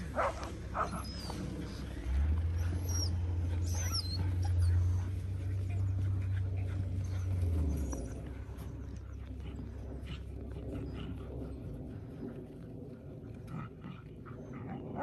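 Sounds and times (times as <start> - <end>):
low steady rumble: 0.0 - 15.0
dogs whining and yipping: 0.2 - 5.2, 6.8 - 9.1.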